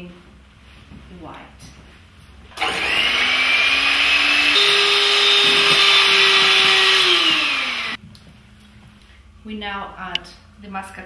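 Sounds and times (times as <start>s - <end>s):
electric hand mixer whipping: 2.6s - 8.0s.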